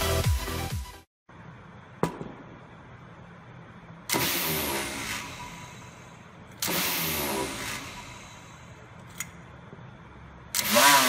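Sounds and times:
electric motor spinning up blade: 0:06.6 - 0:08.2, 0:10.6 - 0:11.0.

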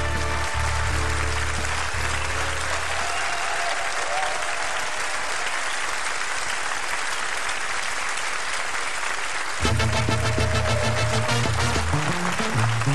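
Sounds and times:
backing music: 0:00.0 - 0:03.0, 0:09.6 - 0:12.9
studio audience applauding: 0:00.0 - 0:12.9.

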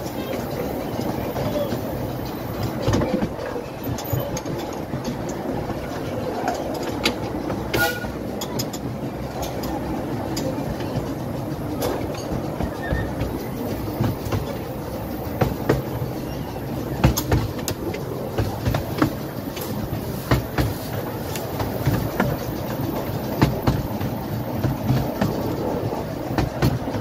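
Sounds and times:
rail joint clicks: 0:00.0 - 0:27.0
train wheels rumbling on rail: 0:00.0 - 0:27.0.

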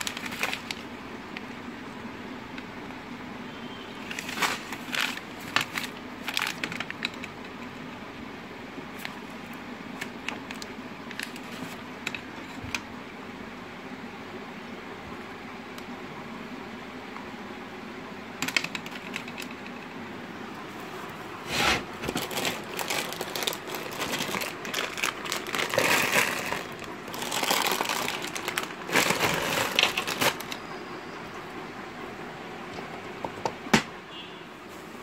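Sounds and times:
plastic bags crinkling: 0:00.0 - 0:00.9, 0:04.1 - 0:07.3, 0:21.8 - 0:30.6
steady background hum: 0:00.0 - 0:35.0.

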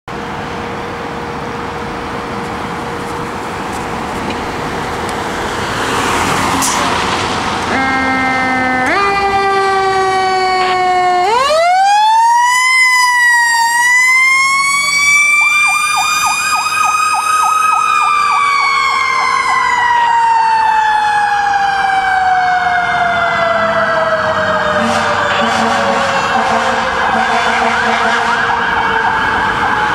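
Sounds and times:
pulsing siren: 0:06.8 - 0:29.9
fire engine siren winding: 0:07.6 - 0:29.9
short siren tones stepping up: 0:07.7 - 0:29.9.

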